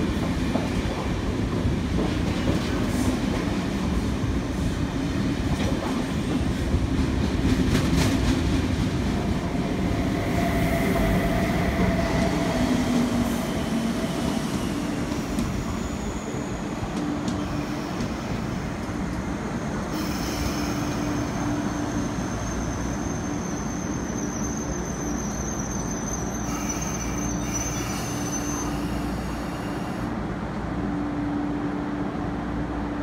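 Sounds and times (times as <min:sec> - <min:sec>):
high train whine: 0:00.0 - 0:33.0
electric train humming: 0:06.7 - 0:32.3.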